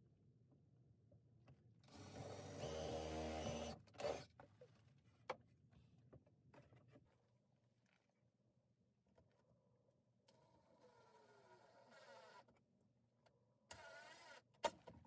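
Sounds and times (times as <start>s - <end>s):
cordless drill whirring: 1.9s - 4.3s.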